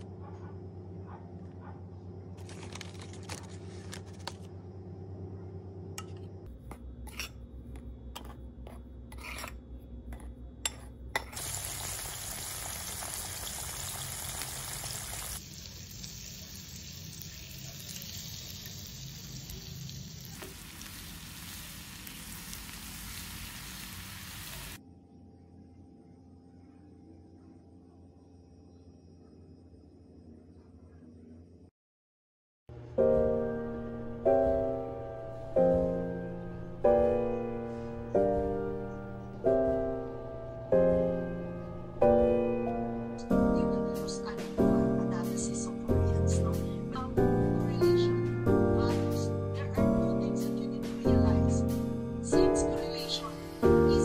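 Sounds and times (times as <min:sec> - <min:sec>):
spoon scraping a bowl: 0:06.0 - 0:11.4
chicken frying in hot oil: 0:11.4 - 0:24.8.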